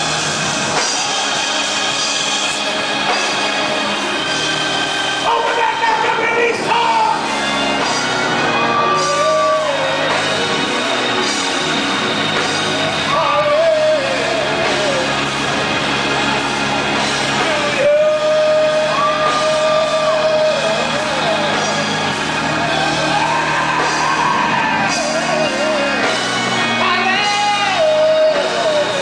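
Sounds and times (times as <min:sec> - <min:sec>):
church music with held chords: 0:00.0 - 0:29.0
man singing into microphone: 0:08.9 - 0:10.6, 0:13.0 - 0:15.3, 0:17.4 - 0:22.0, 0:24.9 - 0:29.0.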